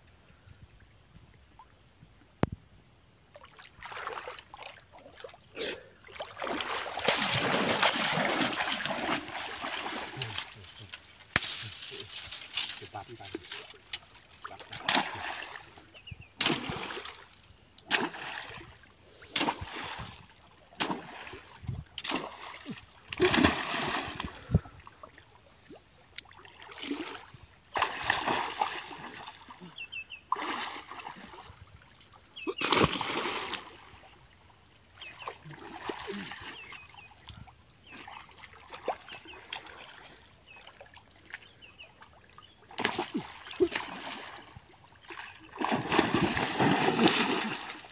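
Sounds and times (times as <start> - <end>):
water splashing: 6.0 - 15.8, 16.4 - 24.6, 25.6 - 29.7, 32.4 - 33.8, 42.7 - 47.9
slapping strokes in water: 6.2 - 12.7, 14.7 - 15.6, 16.4 - 17.2, 17.8 - 18.6, 19.3 - 20.1, 20.8 - 24.3, 32.5 - 33.6, 42.7 - 44.4, 45.1 - 47.9.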